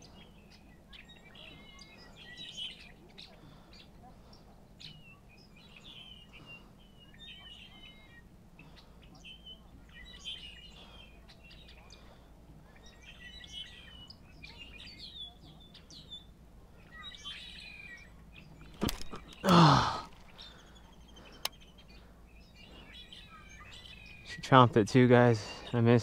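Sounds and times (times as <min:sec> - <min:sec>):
small birds chirping: 0:00.0 - 0:26.0
person huffing: 0:19.4 - 0:20.6.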